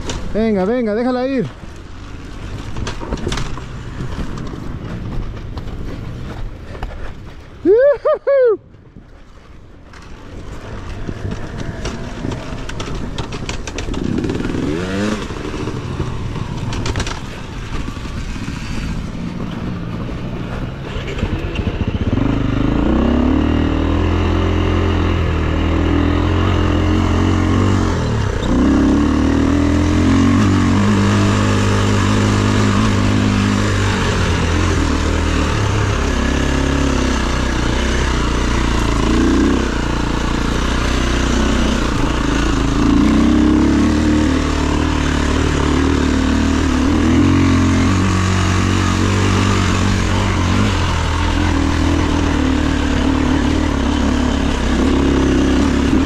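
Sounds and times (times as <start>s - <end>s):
dirt bike engine revving: 10.5s - 19.7s, 20.4s - 56.0s.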